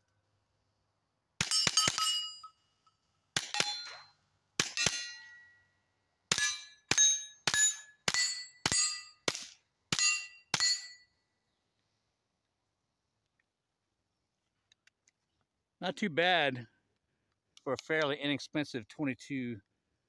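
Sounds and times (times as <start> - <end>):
steel target clanging: 1.4 - 2.6, 3.5 - 5.6, 6.3 - 9.2, 10.0 - 11.1.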